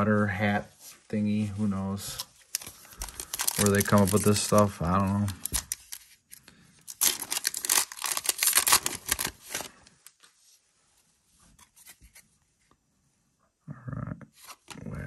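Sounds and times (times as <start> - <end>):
cards rustling: 1.9 - 10.3
plastic wrapper tearing: 2.2 - 6.1, 6.9 - 10.0.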